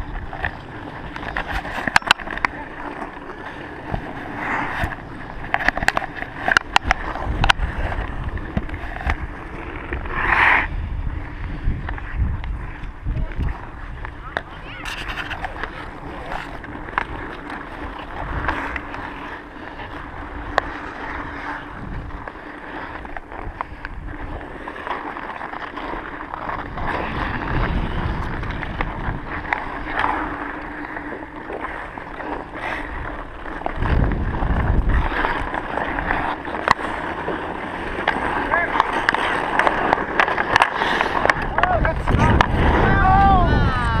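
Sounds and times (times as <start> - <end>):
skate blades scraping on ice: 0.0 - 44.0
wind rumbling on microphone: 0.0 - 44.0
hockey stick clacking on puck: 0.4 - 2.6, 4.7 - 7.6, 35.0 - 42.5.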